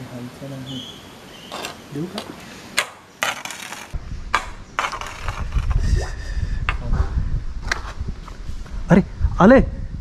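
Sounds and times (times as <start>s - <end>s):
camera handling rumble: 4.8s - 5.8s.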